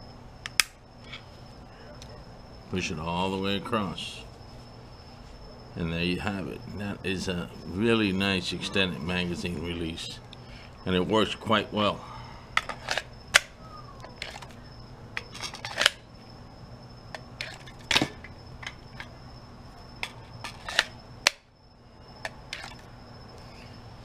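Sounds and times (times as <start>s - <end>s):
faint steady high tone: 1.3s - 4.4s, 5.1s - 12.5s, 13.2s - 17.6s.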